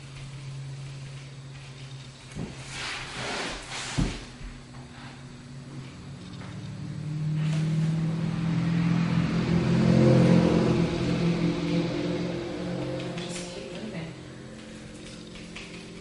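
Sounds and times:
vehicle engine hum: 0.0s - 2.7s, 4.3s - 16.0s.

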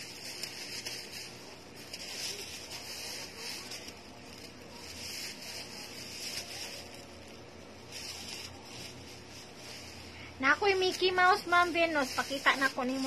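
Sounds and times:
stuffed toys rustling: 0.0s - 13.0s.

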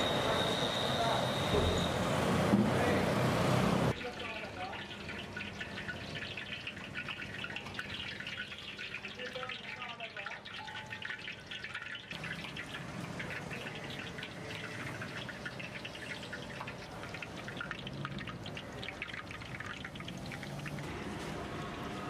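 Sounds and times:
food deep-frying in oil: 0.0s - 22.0s.

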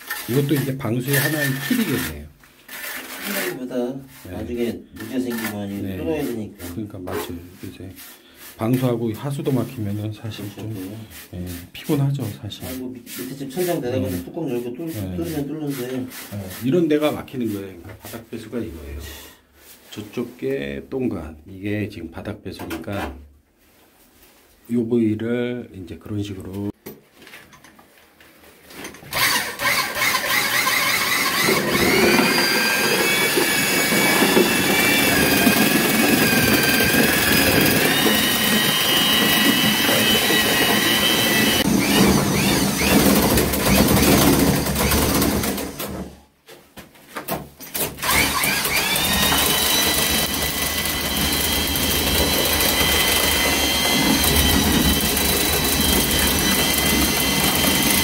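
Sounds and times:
electric paddle mixer churning mortar: 0.0s - 6.8s, 29.1s - 46.1s, 48.0s - 58.0s.

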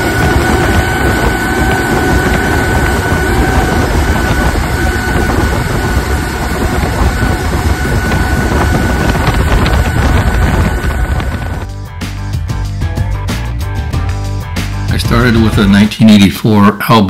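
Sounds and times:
thin high whine: 0.0s - 11.7s
wind rushing on microphone: 0.0s - 11.7s
churning boat wake: 0.0s - 11.8s.

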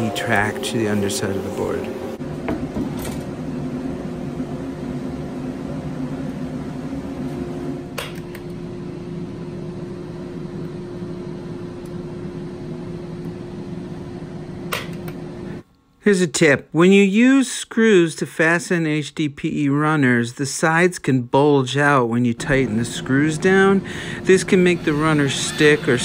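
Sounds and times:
electric machine humming: 0.0s - 16.6s, 21.8s - 26.0s.

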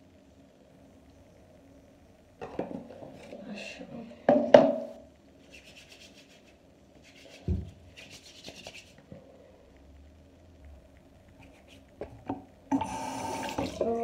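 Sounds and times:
hands rubbing gel together: 5.4s - 9.1s, 11.4s - 12.0s.

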